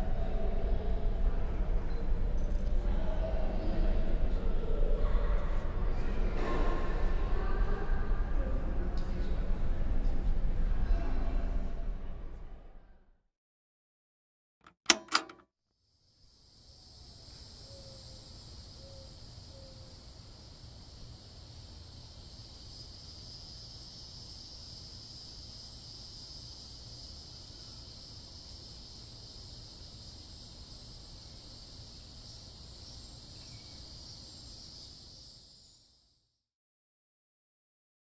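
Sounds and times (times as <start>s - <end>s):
sharp click: 14.6s - 15.4s.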